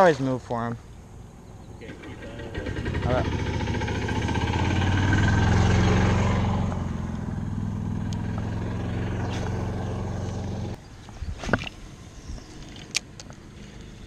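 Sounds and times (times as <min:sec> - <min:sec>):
golf cart engine droning: 0:01.8 - 0:10.8.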